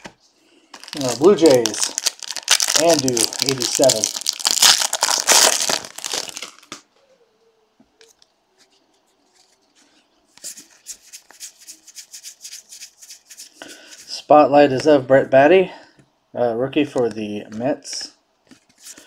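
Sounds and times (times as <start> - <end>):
foil wrapper crinkling and tearing: 0.7 - 6.8.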